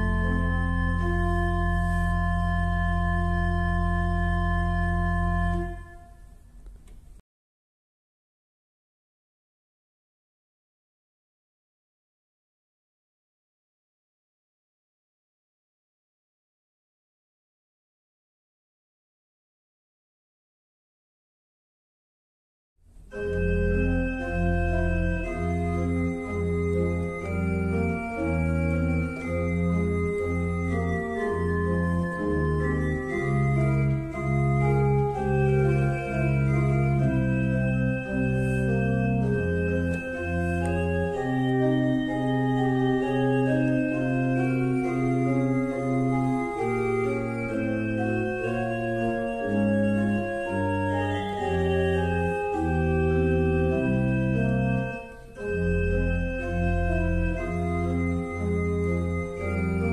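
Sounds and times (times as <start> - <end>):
organ music: 0.0 - 6.4, 23.1 - 59.9.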